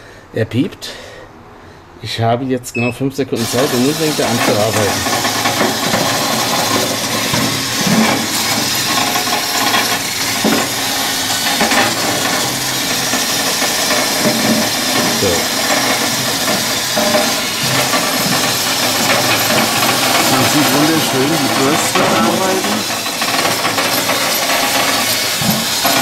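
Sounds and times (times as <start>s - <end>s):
wire brushes scrubbing grill grate: 3.4s - 26.0s.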